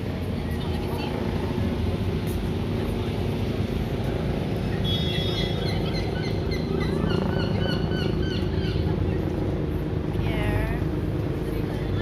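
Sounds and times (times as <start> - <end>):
city traffic rumble: 0.0 - 12.0
high bird calls: 4.8 - 9.0.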